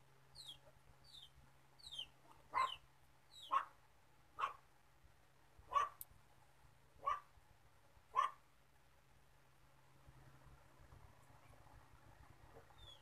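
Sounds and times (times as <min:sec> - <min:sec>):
chicken peeping: 0:00.4 - 0:03.6, 0:12.8 - 0:13.0
dog barking: 0:02.5 - 0:02.8, 0:03.4 - 0:03.8, 0:04.4 - 0:04.6, 0:05.7 - 0:06.0, 0:07.0 - 0:07.3, 0:08.1 - 0:08.4.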